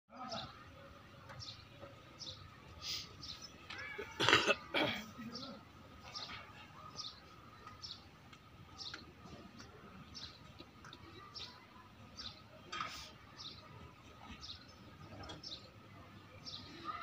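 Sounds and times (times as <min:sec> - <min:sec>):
small birds chirping: 0:00.1 - 0:17.0
loud rough cough-like burst: 0:04.2 - 0:05.1.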